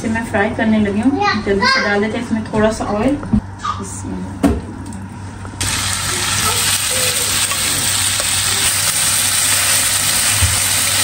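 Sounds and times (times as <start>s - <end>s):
chicken sizzling in hot oil: 5.6s - 11.0s.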